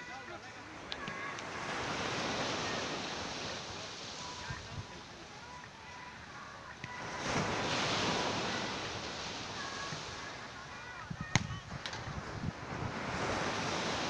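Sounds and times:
surf rushing: 0.0s - 14.0s
wind on microphone: 7.0s - 14.0s
sharp smack: 11.3s - 12.0s.

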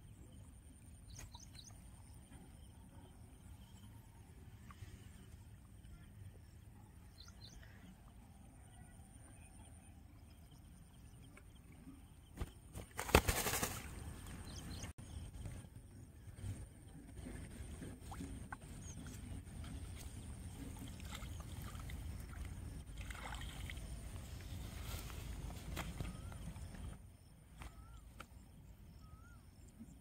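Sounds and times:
faint bird chirps: 0.0s - 12.8s, 23.6s - 30.0s
rustling and thumping in grass: 24.2s - 26.3s.

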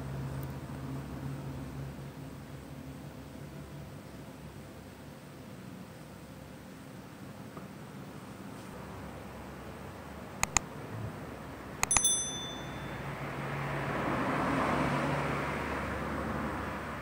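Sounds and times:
quick clicks: 10.4s - 10.6s, 11.8s - 12.7s
bell ding: 11.8s - 13.2s.

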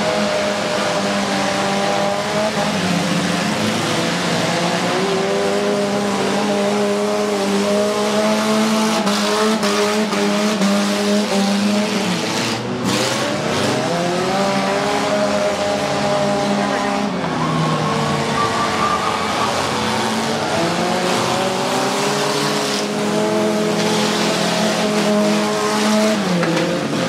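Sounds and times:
car engines racing: 0.0s - 27.0s.

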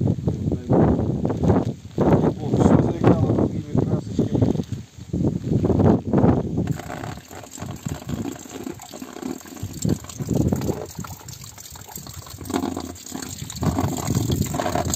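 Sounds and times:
water splashing into barrel: 6.6s - 14.9s.

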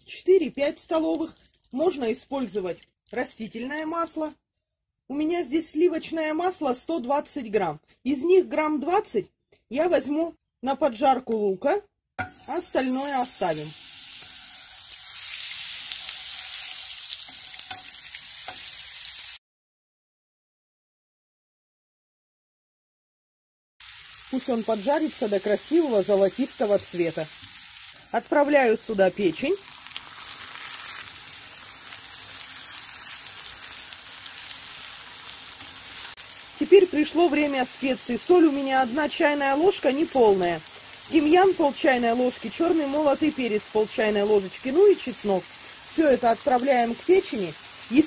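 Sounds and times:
butter sizzling in frying pan: 12.2s - 19.4s, 23.8s - 48.0s.

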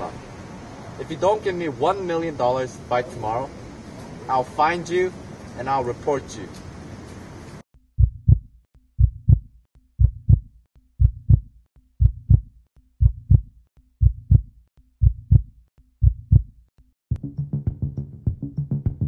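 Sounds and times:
heartbeat thumps: 8.0s - 19.0s.

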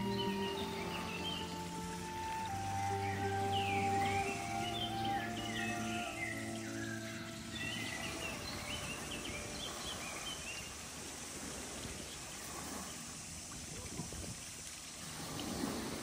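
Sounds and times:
background music: 0.0s - 9.8s
steady outdoor noise: 0.0s - 16.0s.

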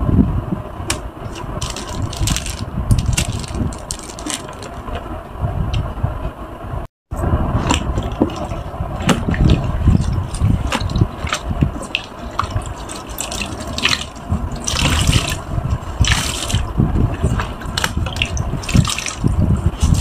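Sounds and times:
water running from squeezed sponge: 1.2s - 4.8s, 7.7s - 20.0s
wet sponges pressed in tub: 1.2s - 4.9s, 7.6s - 20.0s
water splashing and dripping: 1.3s - 4.8s, 7.6s - 20.0s.

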